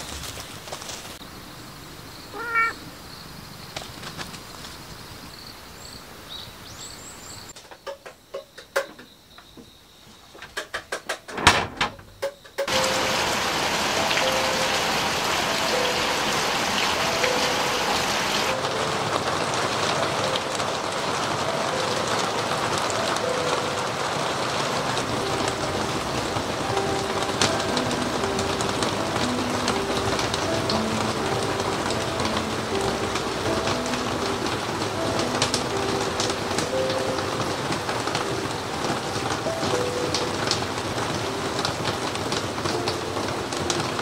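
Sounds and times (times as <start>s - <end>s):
steady rain: 0.0s - 8.2s, 12.5s - 44.0s
faint bird chirps: 1.6s - 7.9s
sharp clicks and knocks: 7.6s - 9.1s, 10.4s - 12.7s
soft background melody: 12.1s - 44.0s.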